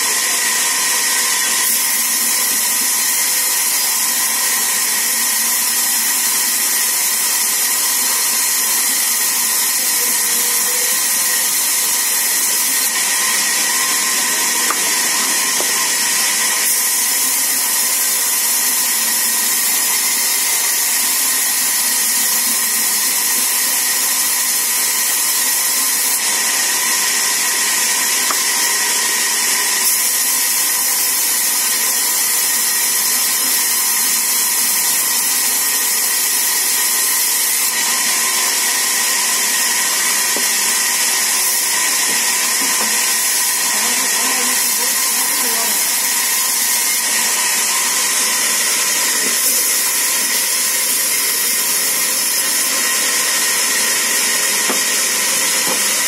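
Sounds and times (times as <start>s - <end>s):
band saw hissing: 0.0s - 56.0s.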